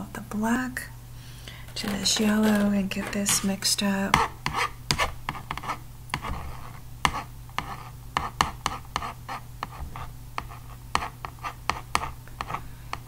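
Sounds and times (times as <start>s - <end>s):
palette knife scraping and tapping: 1.7s - 13.0s.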